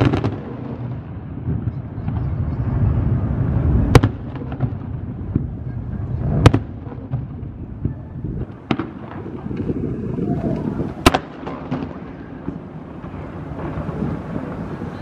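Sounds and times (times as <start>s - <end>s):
firework crackles: 0.0s - 15.0s
low background noise: 0.0s - 15.0s.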